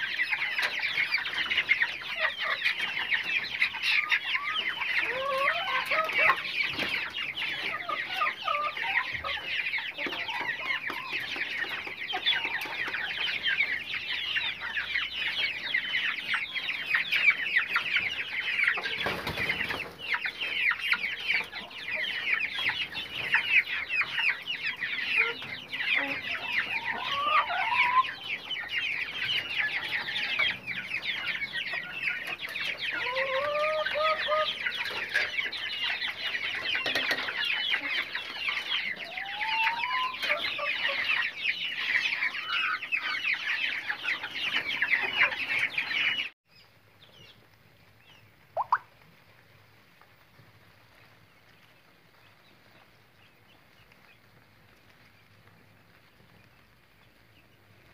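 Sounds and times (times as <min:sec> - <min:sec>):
hens calling: 0:00.0 - 0:46.3, 0:48.5 - 0:49.0
chicks peeping: 0:00.0 - 0:57.9.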